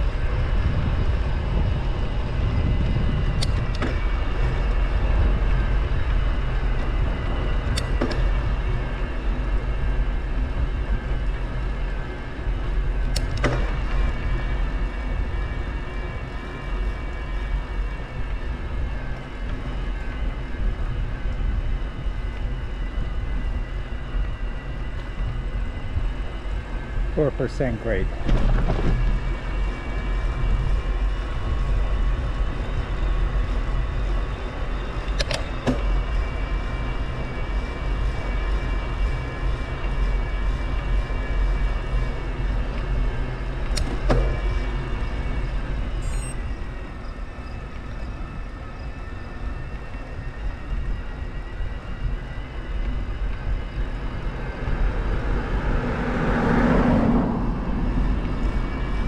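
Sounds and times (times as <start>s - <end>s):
road and wind noise: 0.0s - 59.0s
vehicle passing by: 53.8s - 59.0s.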